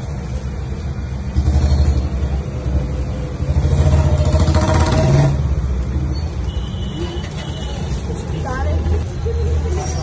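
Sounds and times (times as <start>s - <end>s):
vehicle engine rumble: 0.0s - 10.0s.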